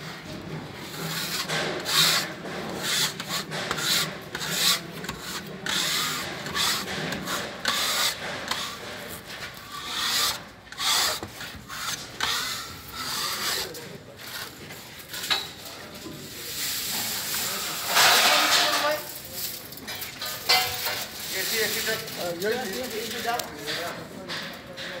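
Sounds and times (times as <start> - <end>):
spatula scraping putty on board: 0.9 - 14.5.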